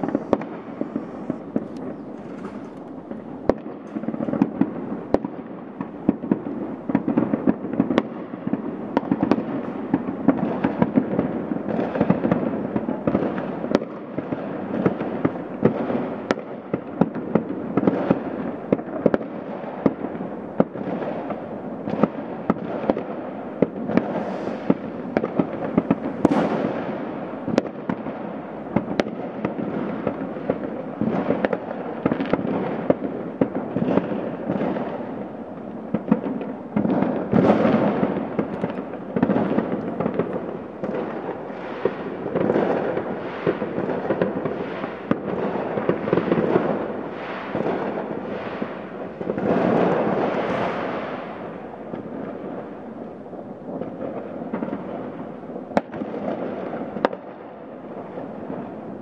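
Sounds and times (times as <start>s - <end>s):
rising firework whistle: 0.0s - 3.8s, 23.9s - 28.0s, 39.1s - 53.3s
fireworks rumbling and cracking: 0.0s - 59.0s.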